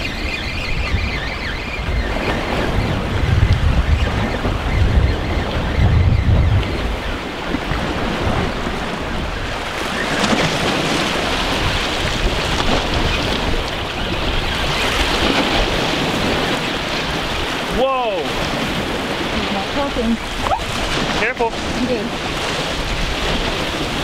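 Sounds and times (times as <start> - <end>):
wind blowing across microphone: 0.0 - 24.0
small waves washing on rocks: 7.5 - 24.0.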